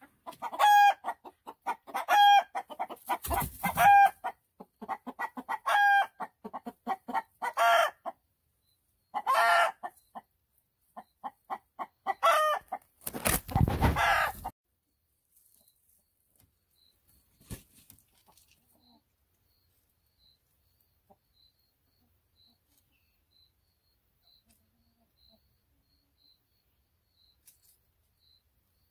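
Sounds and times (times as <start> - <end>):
hen clucking and squawking: 0.0 - 8.2, 9.1 - 14.5.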